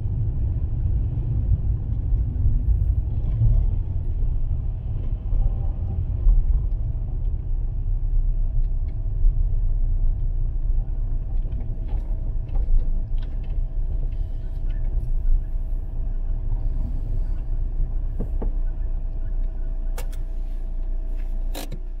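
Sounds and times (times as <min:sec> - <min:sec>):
car engine and tyres rumbling: 0:00.0 - 0:22.0
faint steady whine: 0:10.5 - 0:22.0.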